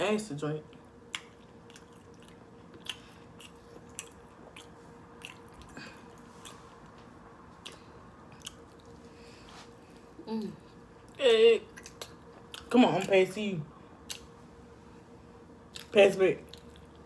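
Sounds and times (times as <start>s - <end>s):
faint steady hum: 0.0s - 17.0s
people chewing with wet smacks: 1.1s - 9.1s, 11.0s - 13.1s, 14.0s - 14.4s, 15.7s - 17.0s.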